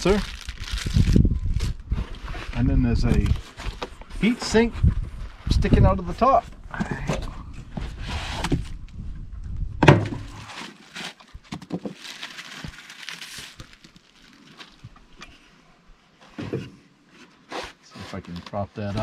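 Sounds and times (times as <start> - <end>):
plastic bag crinkling: 0.0 - 1.2, 10.5 - 14.9
heavy unit set down on wood: 9.8 - 10.3
sharp thump: 9.8 - 10.3.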